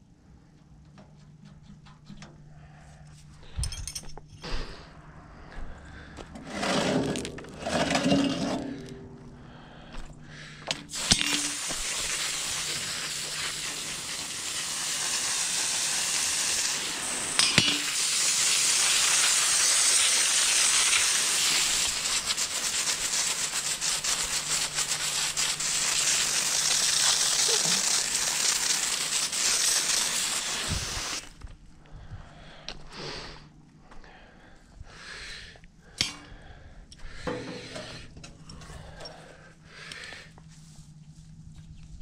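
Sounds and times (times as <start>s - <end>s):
water jet hissing: 10.6s - 31.4s.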